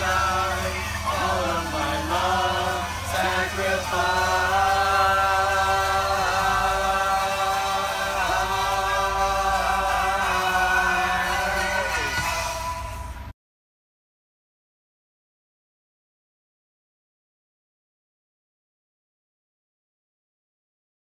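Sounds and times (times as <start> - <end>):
group of voices singing a chord: 0.0 - 13.3.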